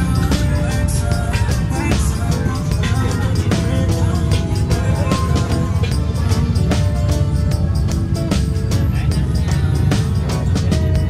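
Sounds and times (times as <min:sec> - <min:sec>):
music with heavy bass: 0:00.0 - 0:11.0.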